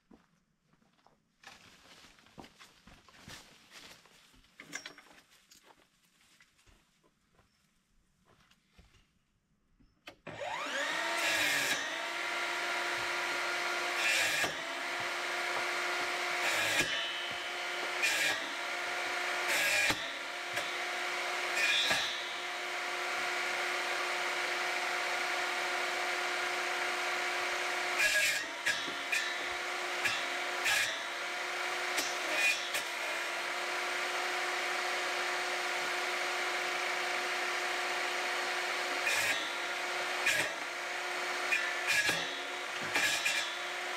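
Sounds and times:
table saw whining: 10.2 - 43.9
saw blade cracking through wood: 10.3 - 43.9.

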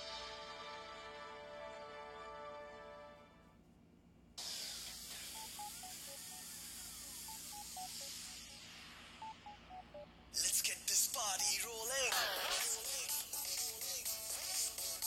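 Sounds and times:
soft beeping tune: 5.3 - 10.6.

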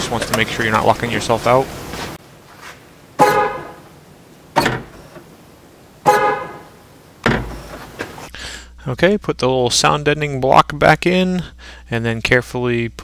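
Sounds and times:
car horn chirp: 3.2 - 3.9, 6.0 - 6.8
dull thump: 6.1 - 8.2.

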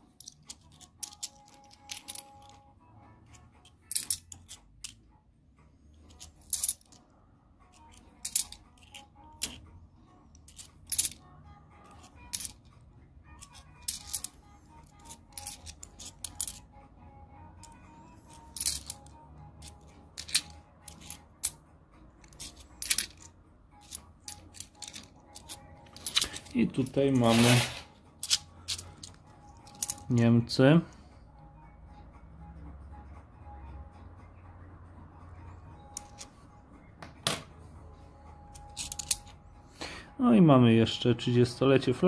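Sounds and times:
coins clinking: 0.0 - 2.7, 3.3 - 5.0, 6.0 - 7.1, 7.7 - 9.7, 10.3 - 12.7, 13.3 - 16.7, 17.6 - 21.6, 22.2 - 30.4, 35.8 - 36.4, 38.4 - 39.4.

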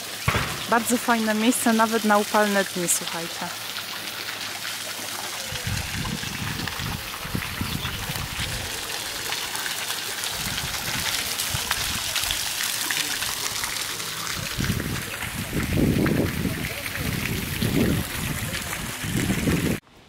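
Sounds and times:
fountain jets splashing: 0.0 - 19.8
low gusty rumbles: 5.6 - 8.7, 14.4 - 19.8.

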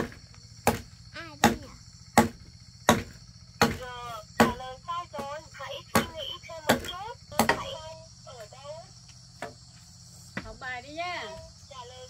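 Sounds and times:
sharp chopping blows: 0.0 - 4.6, 5.2 - 7.8.

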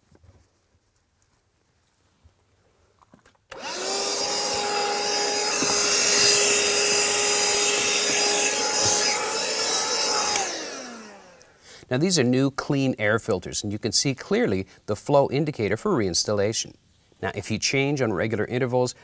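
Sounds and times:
handheld vacuum cleaner whining: 3.5 - 11.6.

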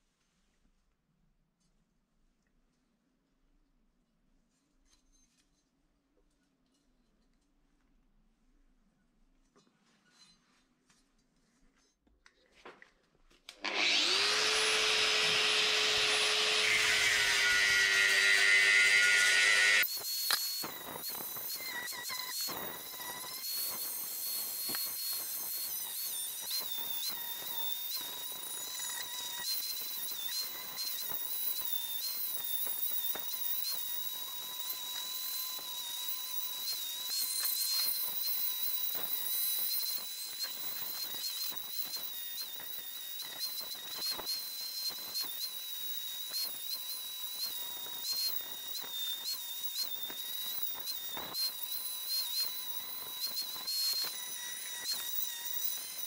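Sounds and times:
angle grinder polishing metal: 13.6 - 56.0.

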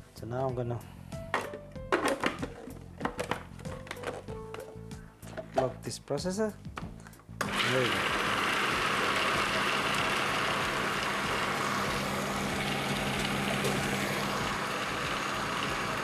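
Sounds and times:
food processor running: 7.4 - 16.0.

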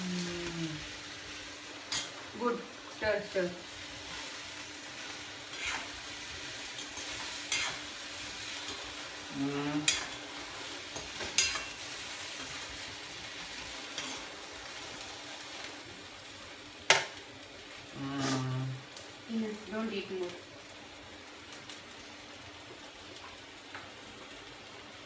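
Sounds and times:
okra sizzling in a pan: 0.0 - 25.0
spatula scraping and clinking on pan: 5.5 - 5.9, 6.7 - 7.9, 11.0 - 11.8.

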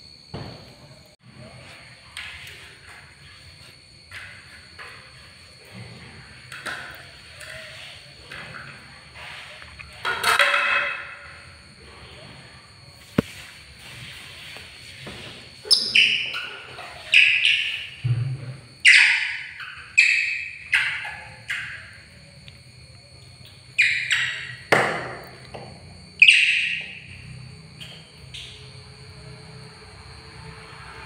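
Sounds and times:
shrill animal calls: 15.6 - 18.0, 18.8 - 22.2, 23.7 - 24.7, 26.1 - 27.2.

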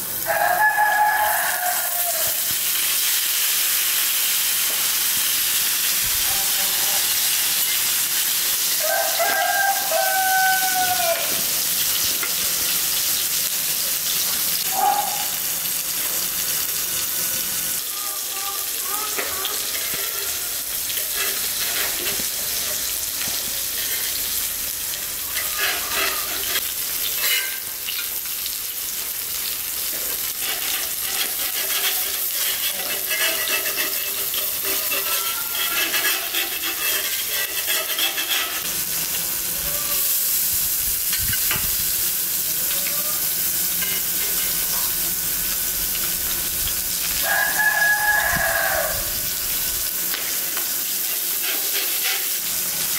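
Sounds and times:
fish sizzling on a griddle: 0.0 - 52.9
rooster crowing: 0.2 - 2.6, 8.8 - 11.6, 14.7 - 15.4, 47.2 - 49.4.

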